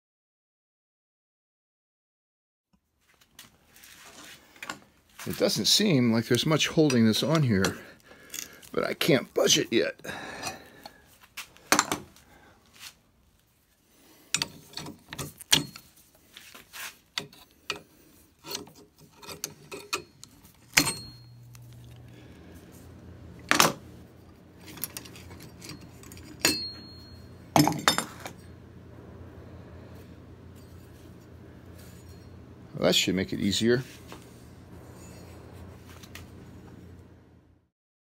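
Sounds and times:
low steady hum: 0:17.1 - 0:37.7.

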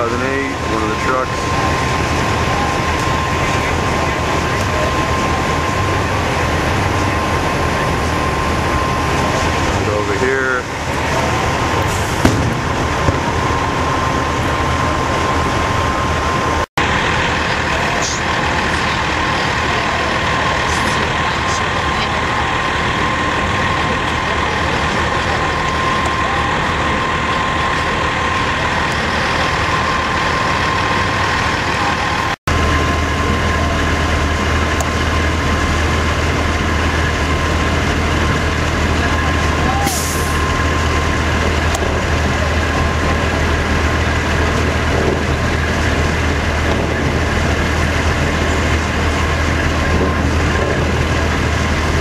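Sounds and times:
diesel truck engines idling: 0:00.0 - 0:52.0
constant high tone: 0:17.2 - 0:34.0.

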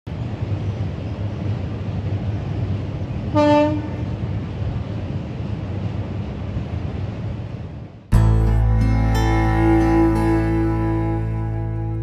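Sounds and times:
loud horn blast: 0:03.4 - 0:04.0
steady low rumble: 0:04.0 - 0:12.0.

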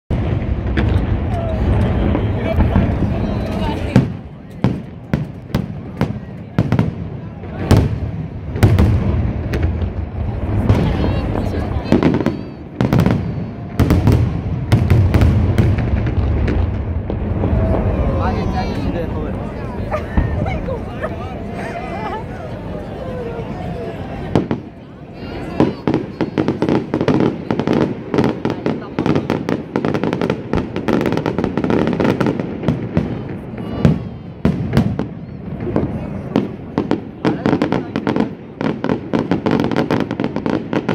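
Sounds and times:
firework bangs: 0:00.1 - 0:21.9, 0:23.6 - 0:40.9.

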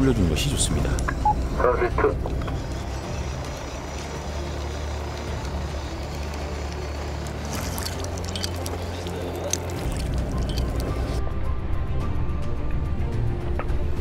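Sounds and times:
boat engine humming: 0:00.0 - 0:11.2.

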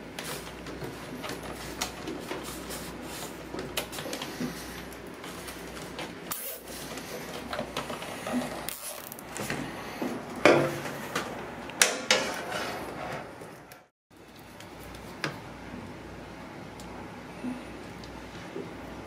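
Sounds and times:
cables rustling and rubbing: 0:00.0 - 0:11.2.

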